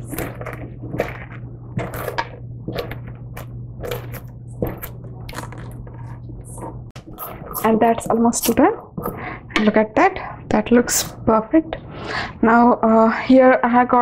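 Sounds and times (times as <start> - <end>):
metal spoon scraping pumpkin: 0.0 - 9.8.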